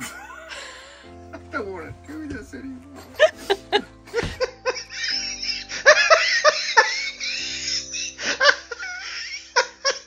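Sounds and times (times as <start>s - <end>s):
background music: 0.0s - 10.0s
people laughing: 3.1s - 10.0s.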